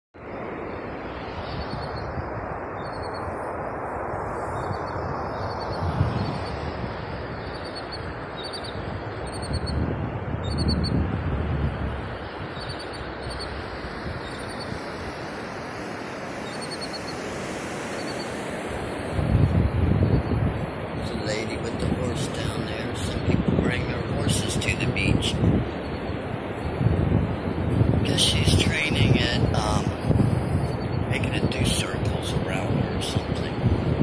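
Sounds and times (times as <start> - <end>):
ocean surf: 0.2 - 34.0
wind buffeting microphone: 0.6 - 34.0
faint bird chirps: 2.8 - 3.4, 7.4 - 9.8, 12.6 - 13.5, 14.2 - 14.8, 16.4 - 17.2, 17.9 - 18.3.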